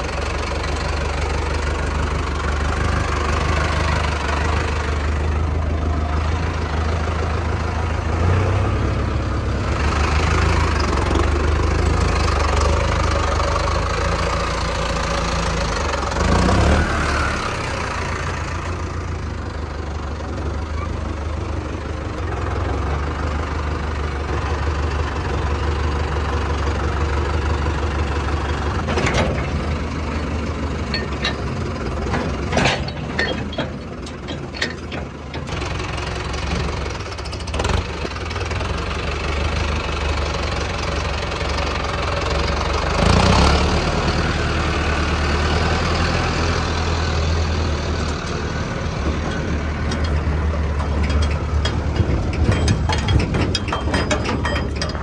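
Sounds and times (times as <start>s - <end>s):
tractor diesel engine idling: 0.0s - 55.0s
short knocks and clanks: 28.8s - 29.8s, 30.9s - 35.6s, 48.9s - 55.0s.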